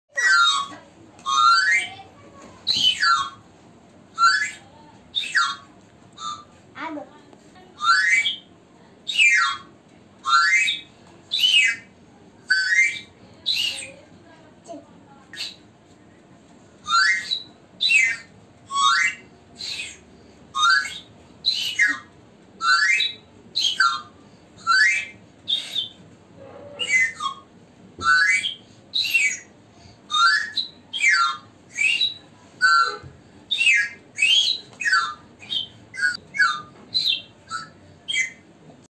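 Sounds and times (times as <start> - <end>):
toy mouth organ squealing: 0.2 - 2.0, 26.8 - 27.4, 28.0 - 29.4, 30.1 - 38.4.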